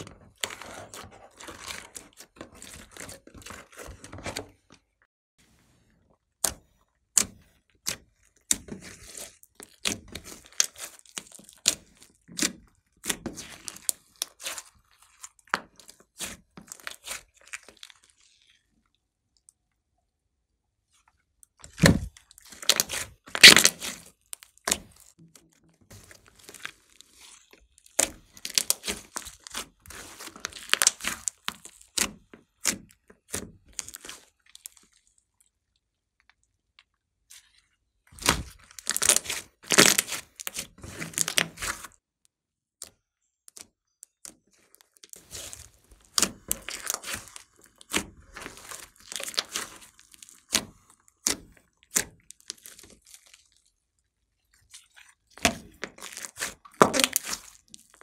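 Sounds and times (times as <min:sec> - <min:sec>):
slime crackling and popping: 0:21.6 - 0:25.2, 0:26.2 - 0:36.8, 0:38.1 - 0:41.9, 0:44.1 - 0:53.8, 0:54.4 - 0:58.0.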